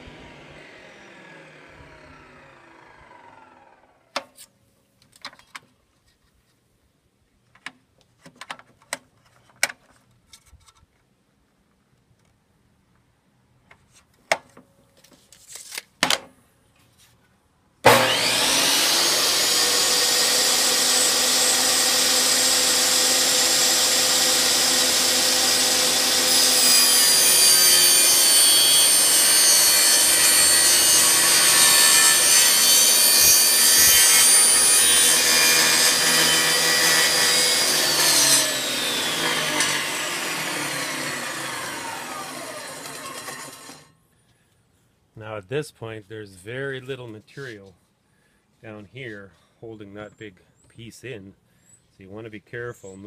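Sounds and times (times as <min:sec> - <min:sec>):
saw winding down whine: 0:00.0 - 0:04.1, 0:17.9 - 0:43.9
table saw running: 0:00.0 - 0:04.1, 0:17.8 - 0:43.9
saw blade cutting panel: 0:00.0 - 0:04.5, 0:17.8 - 0:43.9.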